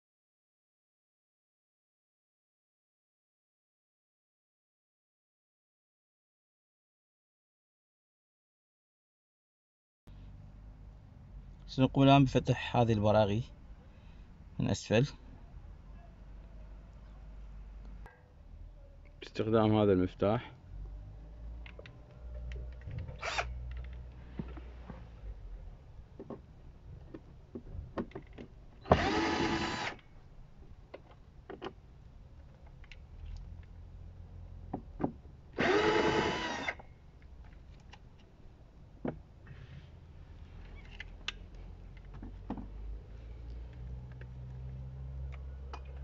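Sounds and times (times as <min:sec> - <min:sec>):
cordless drill spinning: 0:23.2 - 0:23.6, 0:28.9 - 0:30.0, 0:35.6 - 0:36.8
light clicks and handling knocks: 0:26.1 - 0:28.7, 0:40.6 - 0:46.0.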